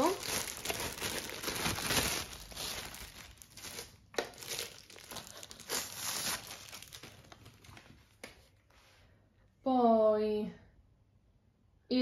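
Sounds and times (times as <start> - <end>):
plastic film crinkling: 0.0 - 8.4.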